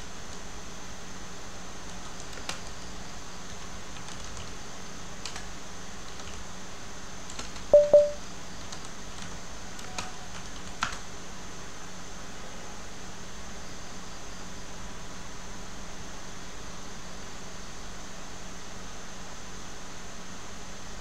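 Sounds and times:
background hiss and hum: 0:00.0 - 0:21.0
keyboard clicks: 0:01.9 - 0:02.7, 0:07.3 - 0:11.0
short loud beeps: 0:07.8 - 0:08.2.

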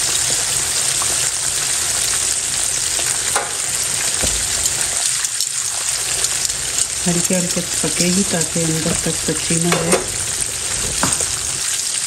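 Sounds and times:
chicken frying in oil: 0:00.0 - 0:12.0
oil popping: 0:02.9 - 0:11.9.

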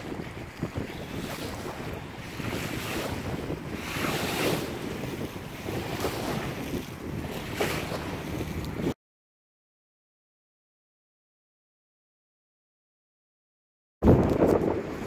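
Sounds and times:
water lapping: 0:00.0 - 0:09.0
wind buffeting microphone: 0:00.0 - 0:09.0, 0:14.0 - 0:15.0.

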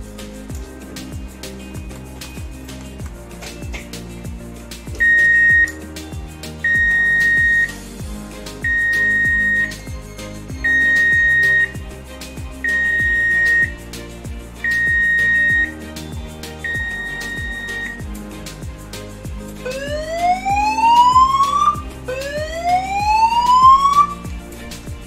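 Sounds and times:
background music with steady beat: 0:00.0 - 0:25.0
high alarm beep from loudspeaker: 0:05.0 - 0:05.7, 0:06.6 - 0:07.7, 0:08.6 - 0:09.8, 0:10.6 - 0:11.7, 0:12.7 - 0:13.7, 0:14.7 - 0:15.8, 0:16.7 - 0:18.0.

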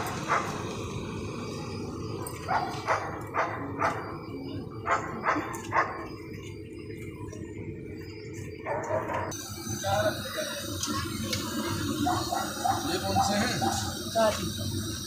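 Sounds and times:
dog barking: 0:02.4 - 0:04.1, 0:04.8 - 0:06.0, 0:08.6 - 0:09.3, 0:12.0 - 0:14.0.

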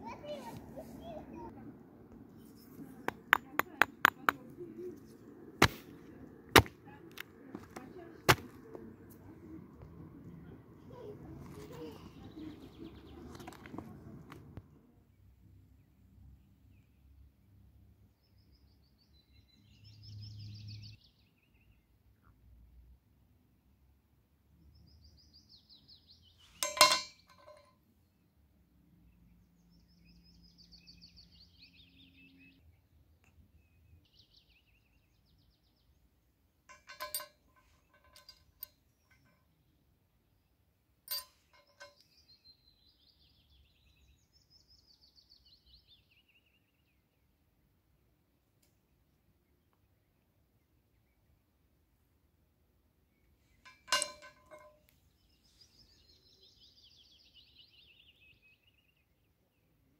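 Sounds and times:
songbird trill: 0:10.8 - 0:13.8, 0:18.1 - 0:22.3, 0:24.6 - 0:28.3, 0:29.0 - 0:47.4, 0:53.0 - 0:59.9
small metal parts clinking: 0:26.5 - 0:27.7, 0:36.7 - 0:39.3, 0:41.1 - 0:42.1, 0:53.6 - 0:54.9
songbird trills: 0:41.1 - 0:47.2, 0:53.1 - 0:59.8.

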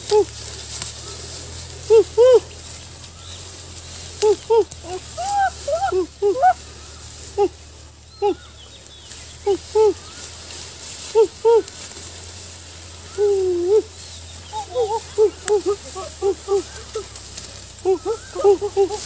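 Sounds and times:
human wordless cries: 0:00.0 - 0:08.8, 0:09.4 - 0:19.0.

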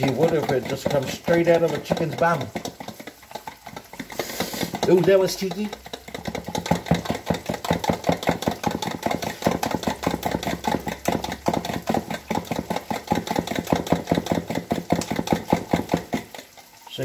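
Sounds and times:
eggs beaten in plastic bowl: 0:00.0 - 0:17.0.

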